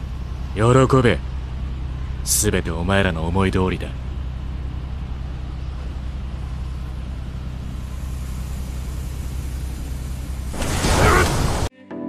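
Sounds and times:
airship engines droning: 0.0s - 11.7s
loud rush of noise: 10.5s - 11.7s.

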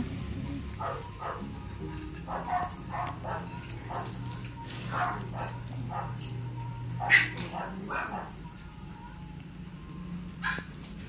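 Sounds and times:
low steady hum: 0.0s - 11.0s
dogs yipping and whimpering: 0.8s - 8.6s.

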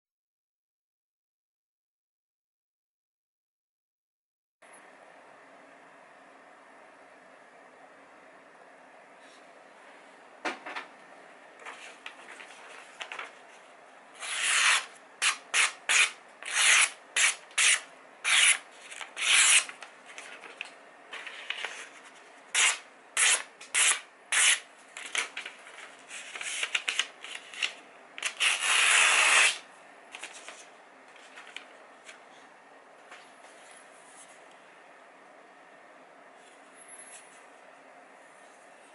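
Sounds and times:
blade slicing paper: 14.2s - 20.7s, 21.3s - 25.4s, 26.1s - 29.6s.

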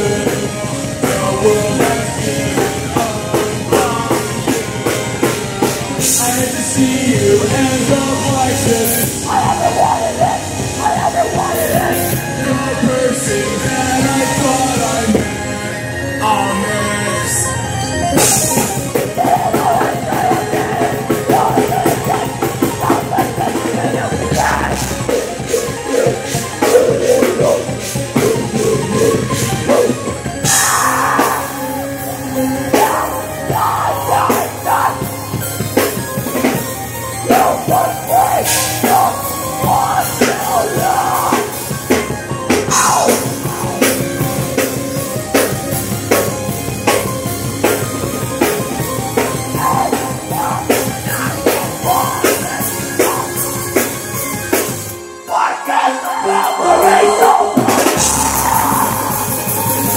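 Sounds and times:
fast drum kit: 0.0s - 15.4s, 18.1s - 54.9s, 57.6s - 59.9s
live band music: 0.0s - 59.9s
shouted vocals: 8.8s - 13.2s, 19.1s - 25.1s, 30.4s - 35.2s, 37.2s - 41.6s, 49.5s - 53.4s, 55.3s - 59.9s.

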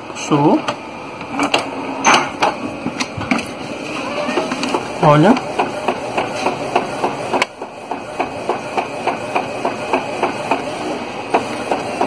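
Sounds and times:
printer carriage shuttling: 1.4s - 12.0s
printer clicking: 2.4s - 12.0s.

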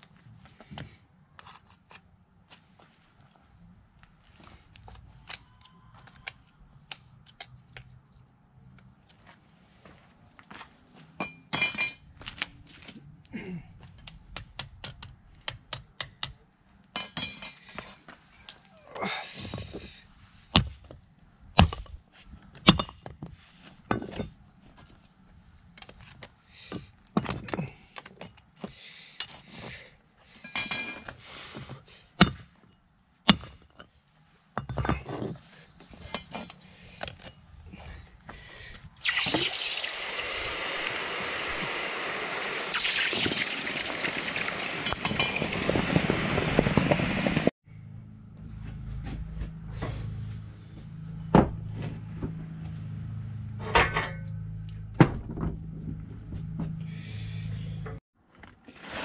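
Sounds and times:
loud steady hiss: 39.0s - 44.8s.

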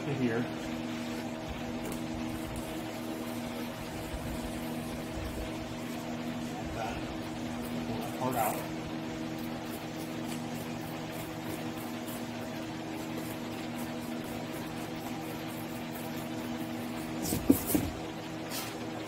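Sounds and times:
razor blade scraping foam board: 9.3s - 18.8s.

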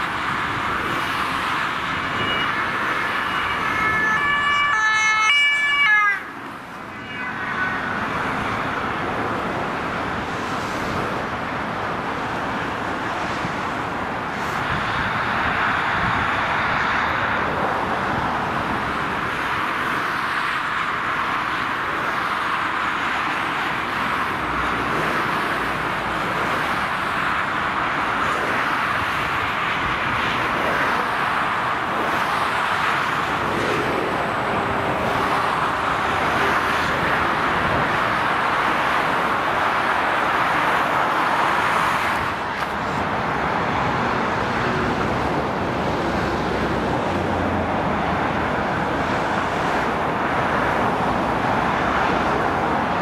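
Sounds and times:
motorway traffic passing: 0.0s - 53.0s
two-tone emergency siren: 1.9s - 8.8s.

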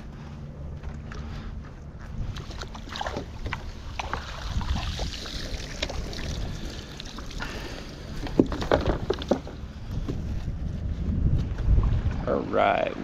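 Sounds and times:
cast net hauled from water: 2.2s - 9.7s.

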